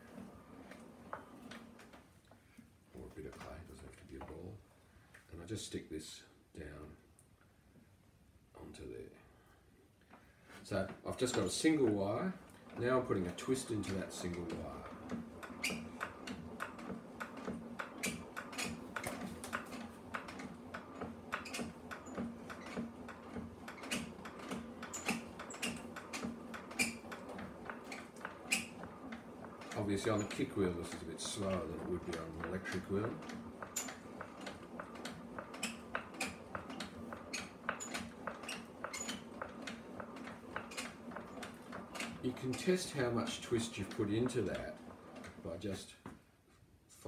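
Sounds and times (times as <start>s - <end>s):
kick wheel clicks and knocks: 10.8s - 46.2s.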